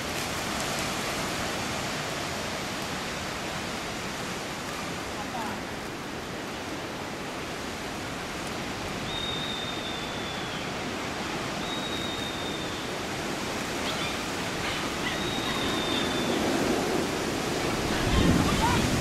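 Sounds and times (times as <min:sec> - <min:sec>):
long thin high whistles: 0:09.0 - 0:10.7, 0:11.6 - 0:13.0
wind buffeting microphone: 0:12.9 - 0:19.0.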